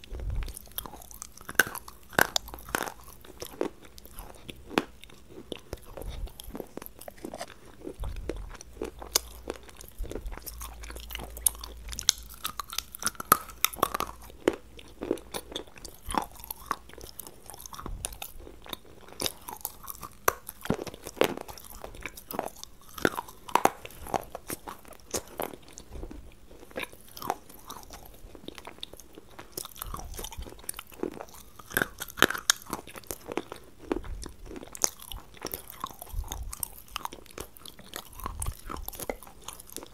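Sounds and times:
crunching and chewing food: 0.0 - 39.9.

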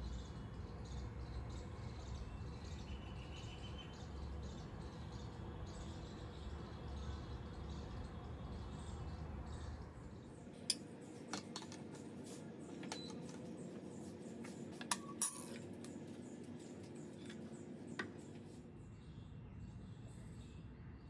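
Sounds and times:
faint background hum: 0.0 - 21.0
tableware clinking: 14.8 - 15.7.

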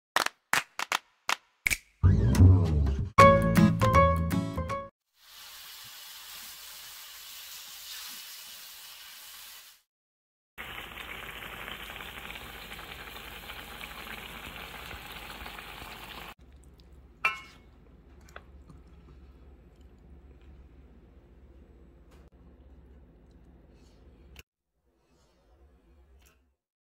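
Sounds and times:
food sizzling in a frying pan: 5.1 - 9.9, 10.6 - 16.4
stew bubbling: 10.6 - 21.0.

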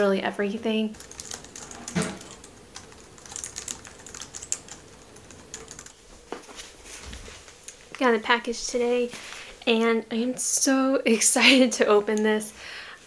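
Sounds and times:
keyboard typing clicks: 1.0 - 5.9.

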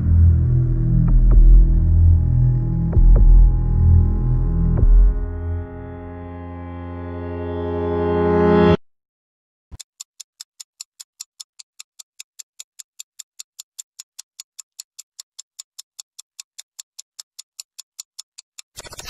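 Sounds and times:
clock ticking fast: 1.1 - 1.8, 2.9 - 3.6, 9.8 - 19.0.

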